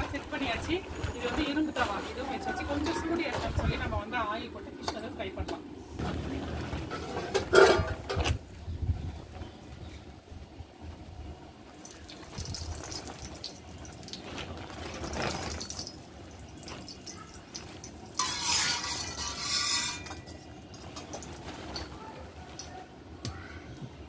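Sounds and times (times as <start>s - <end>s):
oil sizzling: 10.9s - 23.3s
metal spatula spreading: 18.2s - 22.0s.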